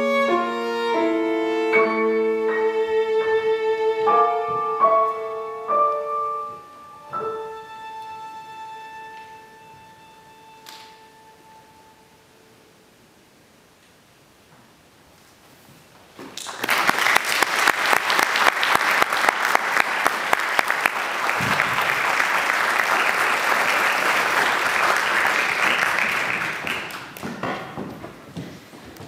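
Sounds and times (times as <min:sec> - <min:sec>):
audience applauding: 0:16.4 - 0:27.4.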